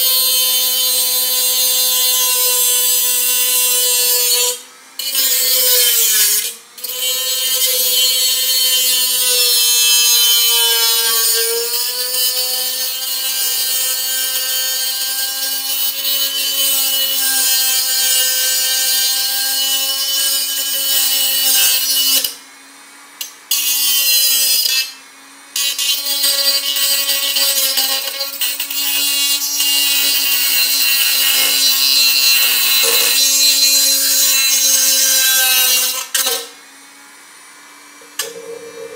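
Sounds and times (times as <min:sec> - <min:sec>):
cutting wheel scraping metal: 0:00.0 - 0:22.4, 0:23.2 - 0:25.0, 0:25.6 - 0:36.6, 0:38.0 - 0:38.9
rotary tool motor whine: 0:25.6 - 0:38.9.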